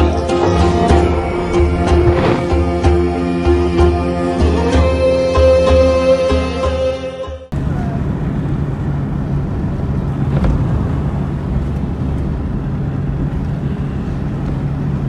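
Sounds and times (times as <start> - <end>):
road and wind noise: 0.0 - 3.4, 7.5 - 15.0
car engine hum: 0.0 - 4.6, 7.5 - 15.0.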